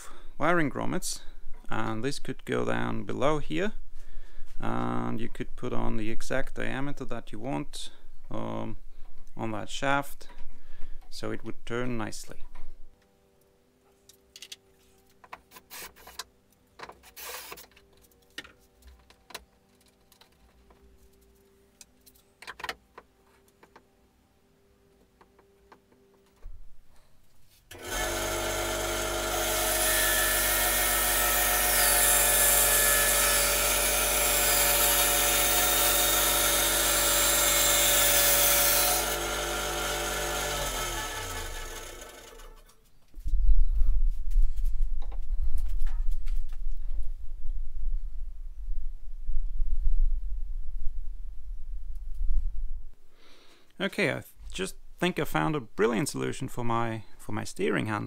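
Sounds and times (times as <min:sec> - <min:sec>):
clicks and knocks of parts handled: 0:14.0 - 0:23.9
bandsaw running: 0:17.0 - 0:17.6, 0:27.7 - 0:42.7.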